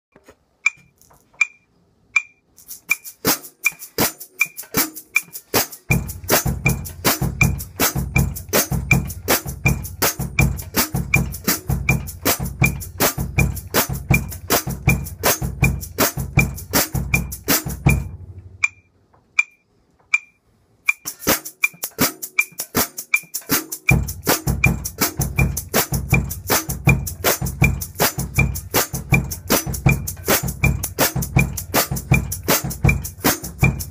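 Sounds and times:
high click keeping time: 0.1 - 5.4, 18.6 - 23.5
shaker stick rhythm: 0.2 - 1.6, 2.2 - 33.9
bass drum and snare groove: 2.2 - 19.5, 20.9 - 33.9.

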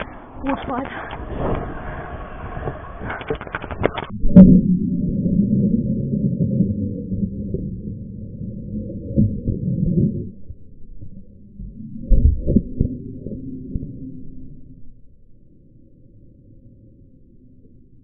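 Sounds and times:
scooter wheels rolling on concrete: 0.0 - 4.1.

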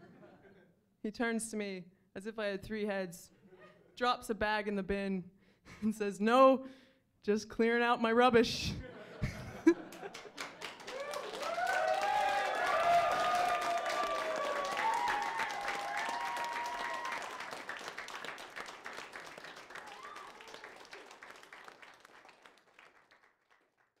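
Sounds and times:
audience applauding: 9.9 - 24.0.

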